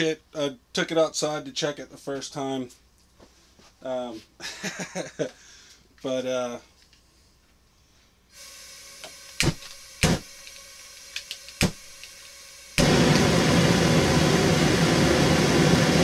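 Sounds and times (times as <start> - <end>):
burner flame rushing: 11.2 - 16.0.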